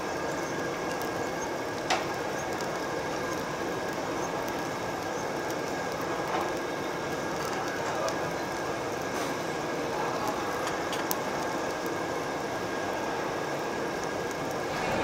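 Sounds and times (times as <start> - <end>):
steady high hum: 0.0 - 15.0
extractor fan whoosh: 14.6 - 15.0.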